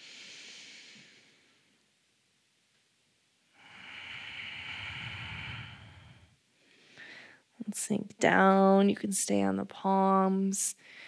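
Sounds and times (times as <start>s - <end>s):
person breathing deeply: 0.0s - 1.6s, 3.5s - 7.5s, 10.8s - 11.0s.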